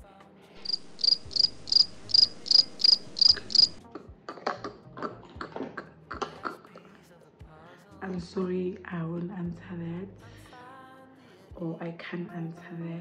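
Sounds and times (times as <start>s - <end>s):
cricket chirps: 0.6s - 3.8s.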